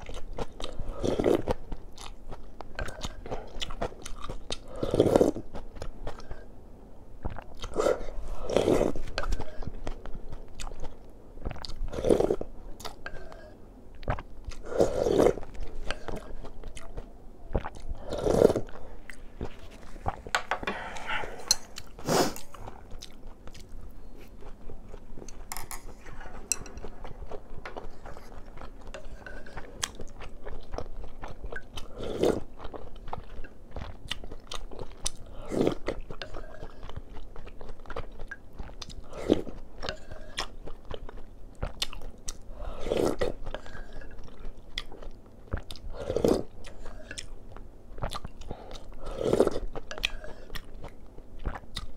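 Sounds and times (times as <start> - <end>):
chewing: 0.0 - 6.5, 7.2 - 51.9
slurping broth: 7.6 - 9.6, 14.6 - 16.4, 17.6 - 22.6, 35.3 - 36.8, 42.5 - 44.1, 49.0 - 50.6.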